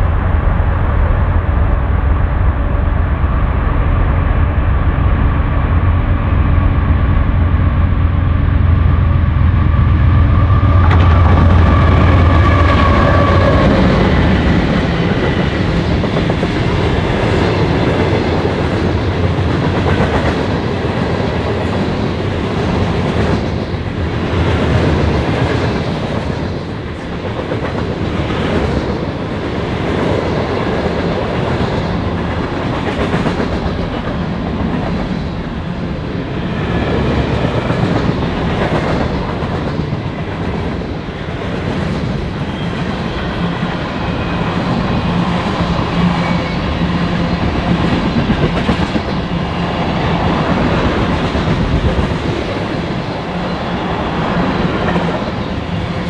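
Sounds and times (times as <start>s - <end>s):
diesel locomotive drone: 0.0s - 56.0s
train wheels rumbling on rail: 0.0s - 56.0s
clickety-clack over rail joints: 10.4s - 35.8s, 36.6s - 43.2s, 47.1s - 53.1s.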